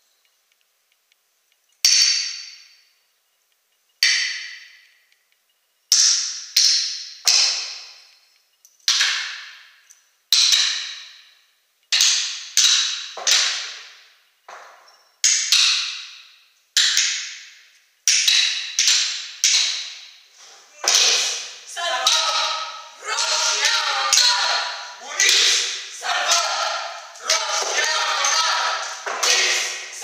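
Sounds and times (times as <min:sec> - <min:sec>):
sharp clacks of small objects: 0:01.8 - 0:02.8, 0:04.0 - 0:05.3, 0:05.9 - 0:11.3, 0:11.9 - 0:20.2, 0:25.0 - 0:30.0.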